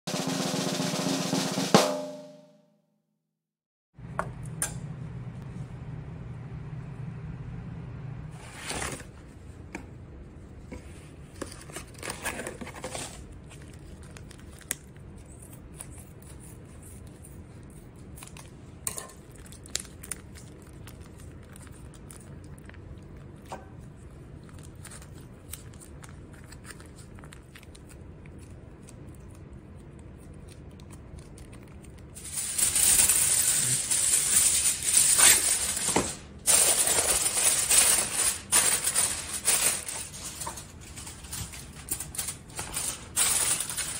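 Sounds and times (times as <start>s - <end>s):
plastic packaging rustling and clicking: 11.3s - 16.1s, 31.5s - 43.9s
aluminium foil crinkling: 11.3s - 43.9s.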